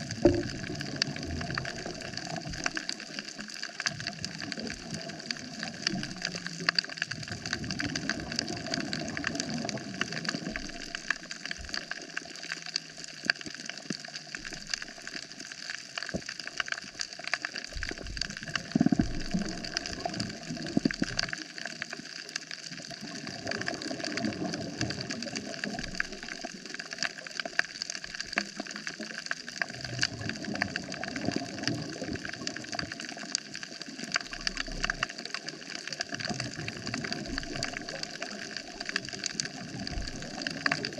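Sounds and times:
crackle of tiny clicks underwater: 0.0 - 40.9.

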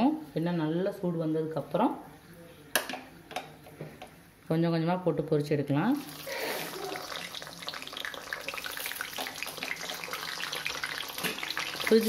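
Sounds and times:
fries sizzling in hot oil: 6.0 - 12.0.

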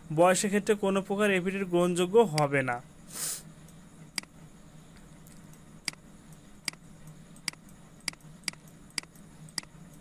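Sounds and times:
faint steady hum: 0.0 - 10.0
short hiss: 3.1 - 3.5
computer mouse clicks: 5.0 - 10.0.

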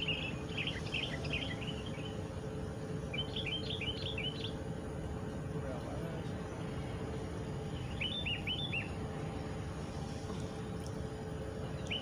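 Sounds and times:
songbird chirps: 0.0 - 5.4, 6.1 - 9.5, 10.4 - 12.0
low outdoor background noise: 0.0 - 12.0.

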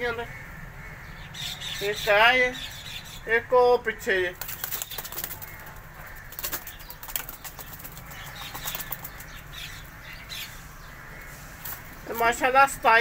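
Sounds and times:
pigeons flapping wings: 4.3 - 9.6.

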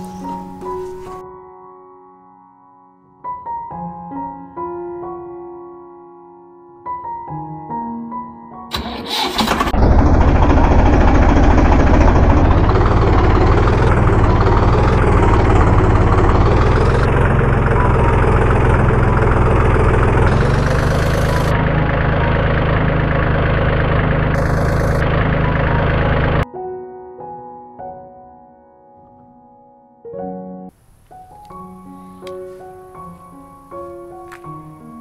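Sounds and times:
tractor engine running: 0.0 - 1.2, 8.7 - 26.4.

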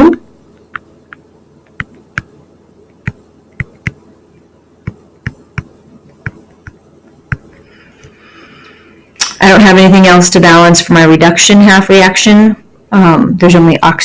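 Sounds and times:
stylus tapping on tablet screen: 0.6 - 2.4, 3.0 - 4.0, 4.9 - 7.6.

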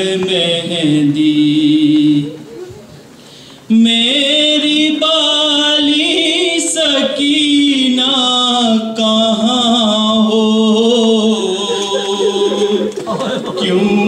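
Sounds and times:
man chanting: 3.7 - 14.0.

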